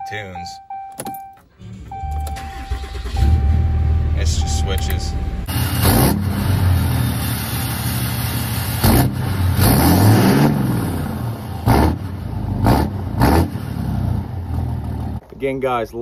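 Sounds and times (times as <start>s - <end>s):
diesel engine revving: 1.5s - 15.2s.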